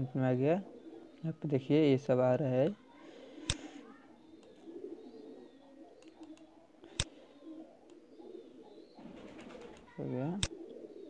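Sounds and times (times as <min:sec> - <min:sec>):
faint bird cooing: 0:00.0 - 0:01.8, 0:02.5 - 0:11.0
computer mouse click: 0:06.0 - 0:07.1.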